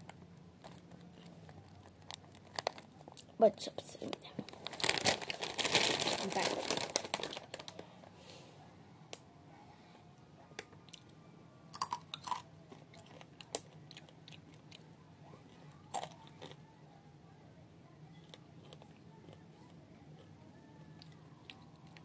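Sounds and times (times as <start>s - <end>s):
chips crunching: 0.0s - 3.3s, 4.5s - 7.8s, 11.7s - 14.8s, 15.9s - 16.6s, 18.2s - 19.4s
faint low hum: 0.0s - 22.0s.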